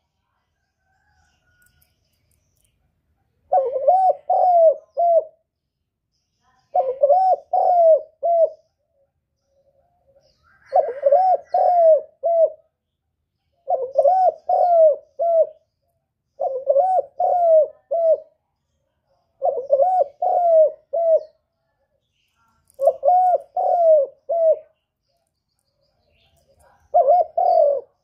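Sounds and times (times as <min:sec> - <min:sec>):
dove cooing: 0:03.5 - 0:05.4, 0:06.7 - 0:08.7, 0:10.5 - 0:12.7, 0:13.6 - 0:15.6, 0:16.4 - 0:18.4, 0:19.4 - 0:21.4, 0:22.7 - 0:24.8, 0:26.6 - 0:28.0.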